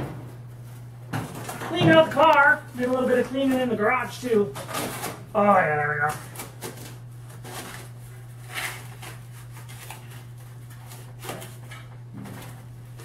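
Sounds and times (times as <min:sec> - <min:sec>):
steady low hum: 0:00.0 - 0:13.0
cardboard rustling and scraping: 0:06.1 - 0:13.0.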